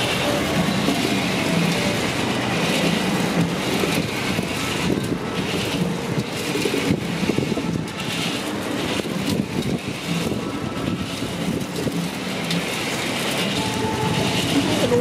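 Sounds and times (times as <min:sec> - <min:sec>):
roaster drum rattling pebbles: 0:00.0 - 0:15.0.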